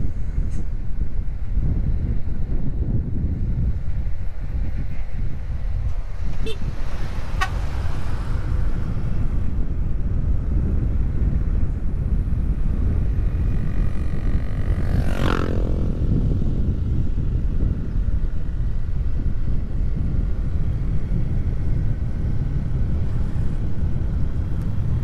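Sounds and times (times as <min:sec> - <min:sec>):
wind buffeting microphone: 0:00.0 - 0:25.0
motorcycle engine running: 0:07.6 - 0:25.0.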